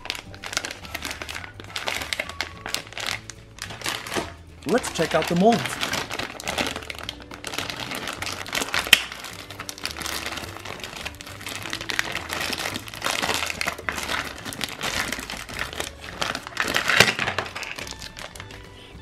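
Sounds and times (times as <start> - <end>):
plastic molds rustling: 0.0 - 18.6.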